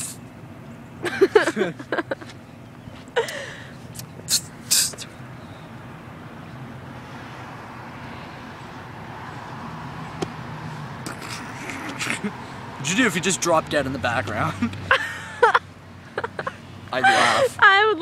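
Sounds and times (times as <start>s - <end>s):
traffic rumble: 0.0s - 18.0s
vehicle passing: 1.1s - 18.0s
short hissy noises: 4.0s - 5.1s.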